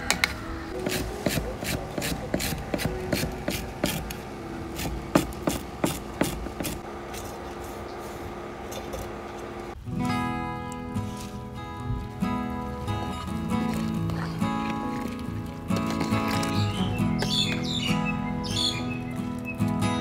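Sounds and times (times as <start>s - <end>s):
knife chopping on cutting board: 0.8s - 4.0s.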